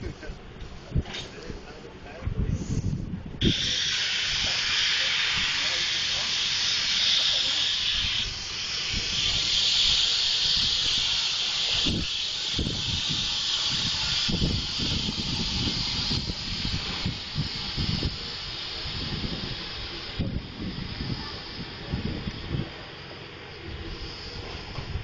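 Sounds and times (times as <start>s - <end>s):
hiss of tyres: 2.5s - 25.0s.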